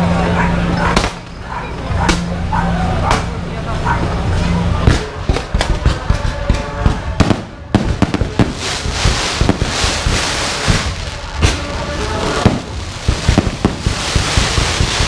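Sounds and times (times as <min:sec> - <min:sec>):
fireworks bangs: 0:04.8 - 0:15.0
fireworks crackling and hissing: 0:06.9 - 0:15.0.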